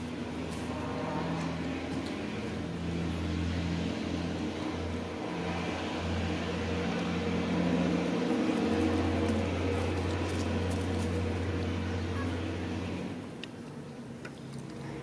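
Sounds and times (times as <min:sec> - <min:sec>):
low mechanical motor hum: 0:00.0 - 0:15.0.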